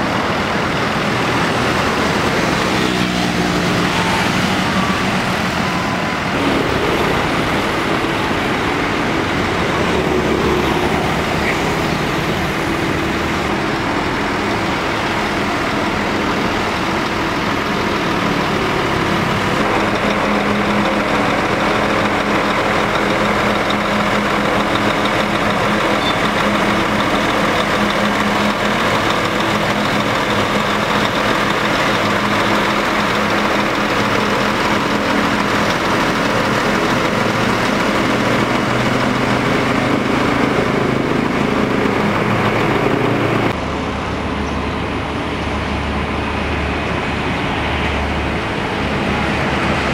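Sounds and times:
diesel engine idling: 0:00.0 - 0:49.9
street traffic passing: 0:00.0 - 0:49.9.

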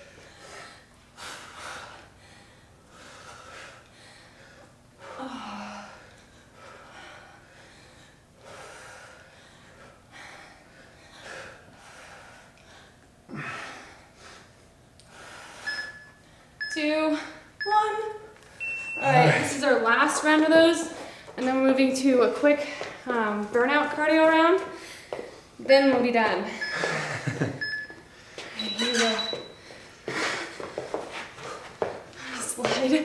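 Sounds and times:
person grunting: 0:19.0 - 0:19.6
heavy breathing exhalations: 0:29.5 - 0:32.6.

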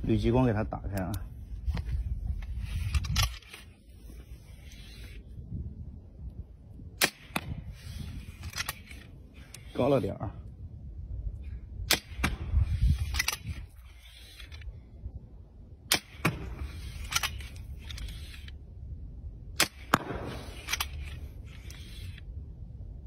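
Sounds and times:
compound bow shot snapping: 0:07.0 - 0:07.7, 0:11.8 - 0:13.5, 0:15.9 - 0:17.5, 0:19.6 - 0:21.2.

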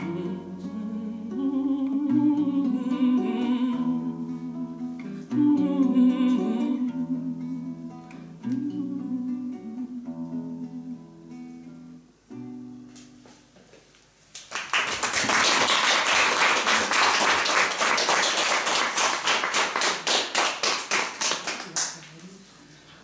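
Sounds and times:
acoustic guitar notes ringing: 0:00.0 - 0:13.2
audience clapping: 0:14.3 - 0:22.3.

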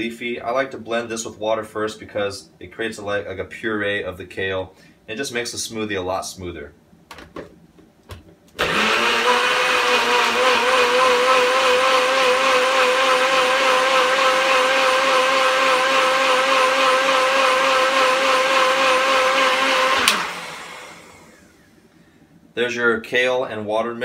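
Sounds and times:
blender clicks: 0:08.6 - 0:21.2
blender motor whining: 0:08.6 - 0:21.8.

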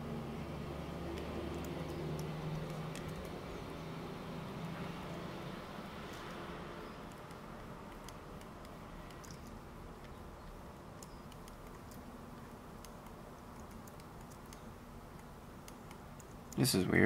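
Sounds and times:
low room hum: 0:00.0 - 0:17.0
mouse and keyboard clicking: 0:01.0 - 0:03.8, 0:06.1 - 0:16.7.

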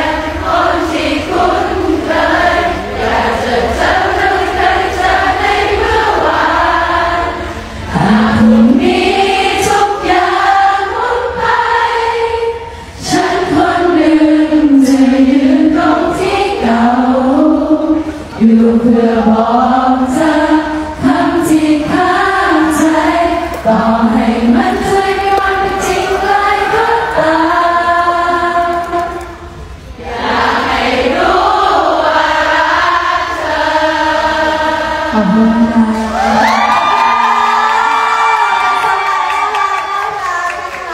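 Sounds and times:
person singing slow song: 0:05.8 - 0:11.6, 0:33.2 - 0:39.0.

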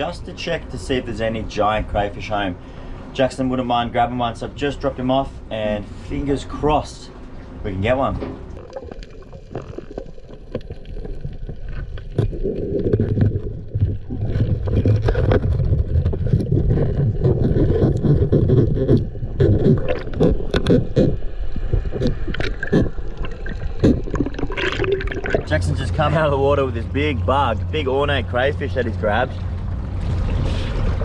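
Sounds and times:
muffled underwater rumble: 0:08.1 - 0:31.0
sharp underwater clicks: 0:08.5 - 0:25.5.

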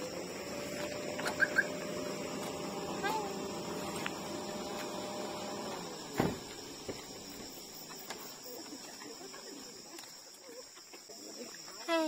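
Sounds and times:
high-pitched insect drone: 0:00.0 - 0:08.7, 0:11.1 - 0:12.0
thump: 0:06.1 - 0:07.0.

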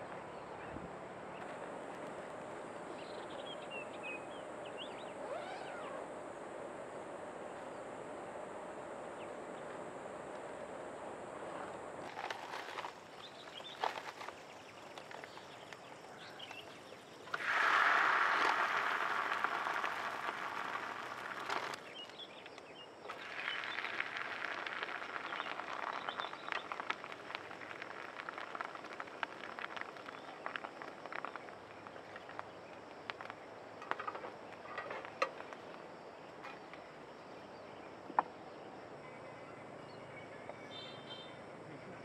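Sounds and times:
flatbread sizzling in a pan: 0:12.0 - 0:34.6.

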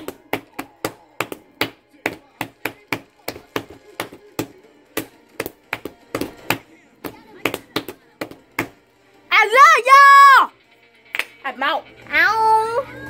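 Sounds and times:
hands tapping on tabletop: 0:00.0 - 0:08.8.

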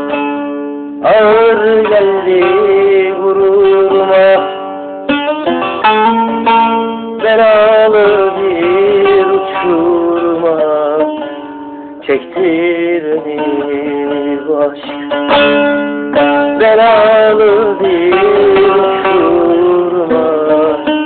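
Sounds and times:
plucked string melody: 0:00.0 - 0:21.0.

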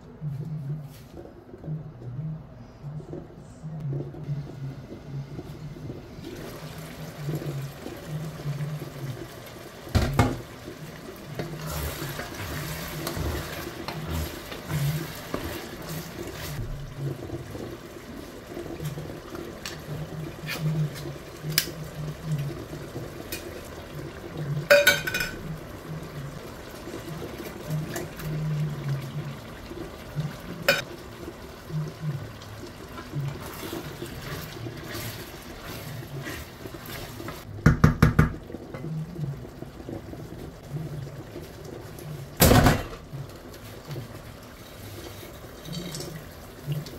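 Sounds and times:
stew simmering in a pot: 0:00.0 - 0:46.9
knocks and clinks on a pot: 0:24.7 - 0:25.5, 0:37.7 - 0:38.4.

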